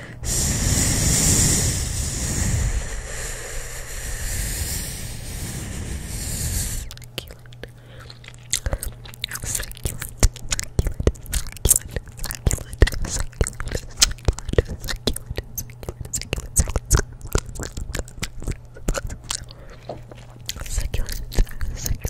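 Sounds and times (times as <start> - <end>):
gum chewing wet smacks: 6.8 - 22.0.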